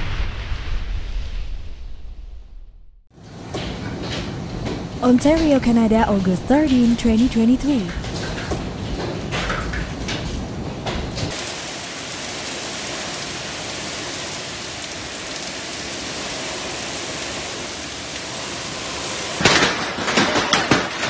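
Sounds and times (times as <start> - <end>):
heavy rain hiss: 11.3 - 19.5
hailstones hitting: 11.3 - 21.0.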